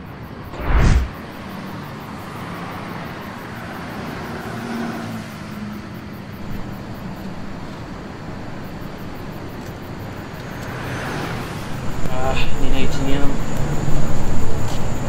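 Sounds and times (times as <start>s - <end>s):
distant traffic: 0.0s - 15.0s
low hum: 0.6s - 1.2s.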